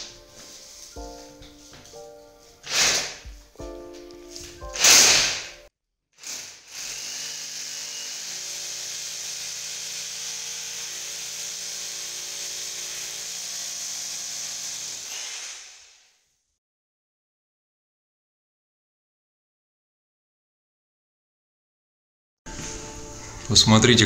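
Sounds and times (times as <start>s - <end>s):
loud burst: 4.8s - 5.5s
rotary hammer boring into wall: 4.8s - 5.5s.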